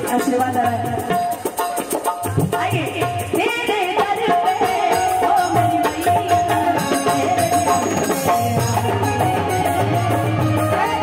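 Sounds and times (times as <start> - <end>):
hand drum percussion: 0.0 - 11.0
keyboard melody: 6.7 - 11.0.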